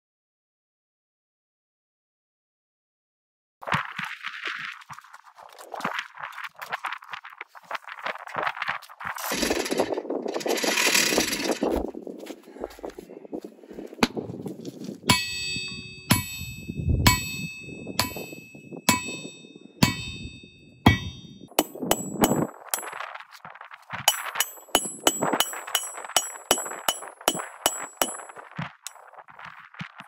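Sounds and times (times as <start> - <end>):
hammer clanging on anvil: 15.1 - 22.9, 24.1 - 28.4.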